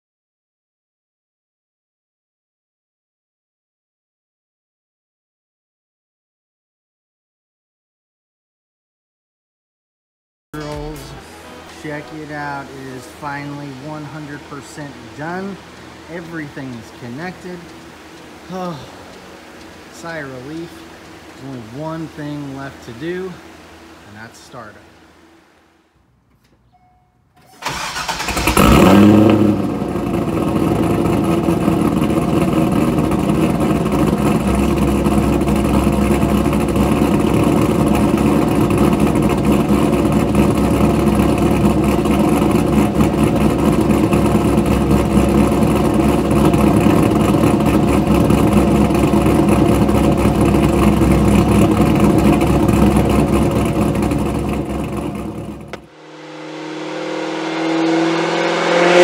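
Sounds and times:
car engine cranking and idling: 0:10.6 - 0:24.0, 0:27.3 - 0:59.0.

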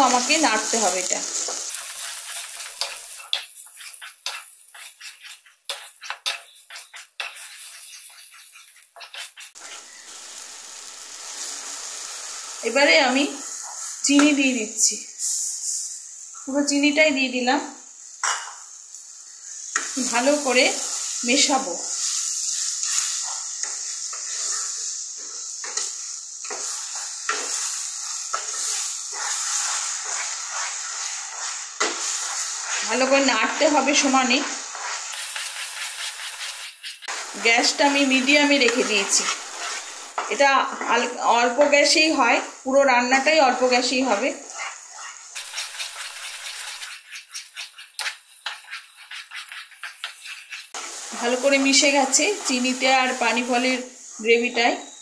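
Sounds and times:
spatula scraping pan: 0:00.0 - 0:10.0, 0:20.8 - 0:41.1, 0:43.7 - 0:52.8
paste sizzling in pan: 0:00.0 - 0:55.0.

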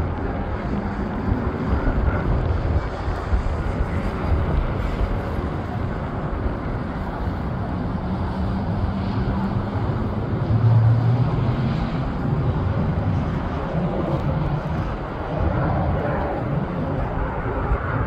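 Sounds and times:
jet engine rumble: 0:00.0 - 0:18.0.

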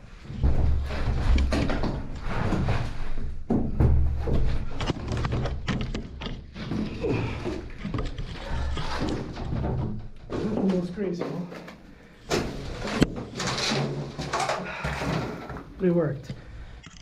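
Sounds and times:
knocks and scrapes: 0:00.0 - 0:17.0.

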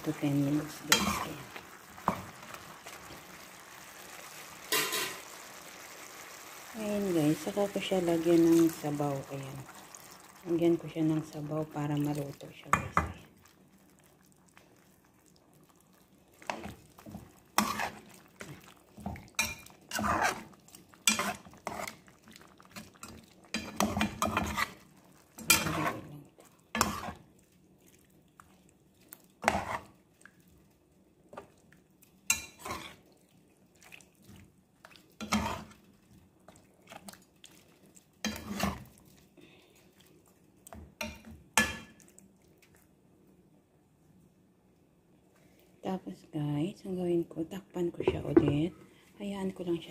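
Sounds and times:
metal spoon scraping a pan: 0:00.6 - 0:02.2, 0:04.7 - 0:05.3, 0:16.5 - 0:22.1, 0:22.8 - 0:26.1, 0:26.7 - 0:27.2, 0:29.4 - 0:29.9, 0:32.3 - 0:33.0, 0:35.2 - 0:35.8, 0:38.2 - 0:38.9.

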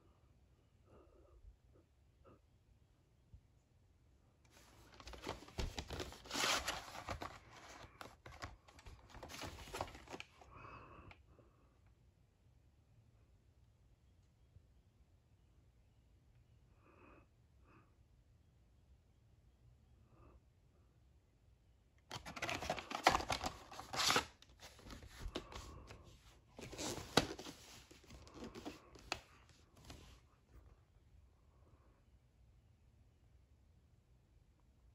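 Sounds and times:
cardboard sleeve rustling: 0:04.5 - 0:10.5, 0:22.1 - 0:30.2.

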